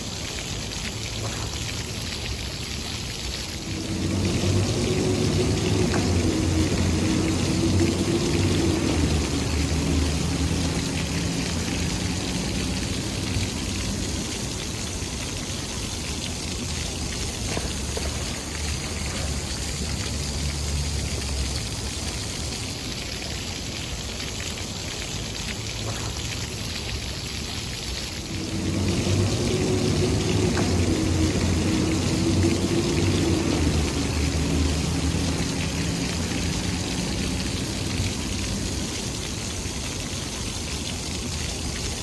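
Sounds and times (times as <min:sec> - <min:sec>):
fountain water splashing: 0:00.0 - 0:42.0
low rumble: 0:03.5 - 0:22.2, 0:28.2 - 0:34.8.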